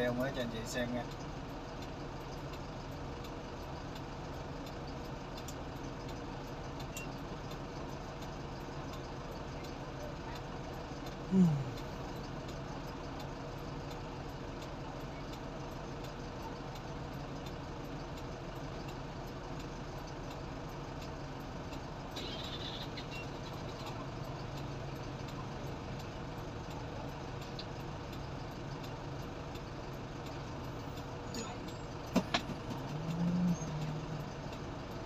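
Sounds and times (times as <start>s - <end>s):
low engine drone: 22.0s - 35.0s.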